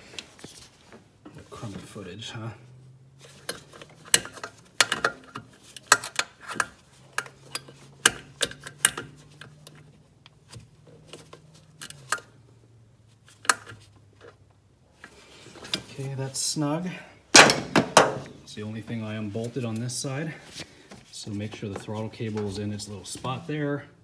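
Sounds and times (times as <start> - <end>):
metal tool clicking on bolt: 3.5 - 9.5.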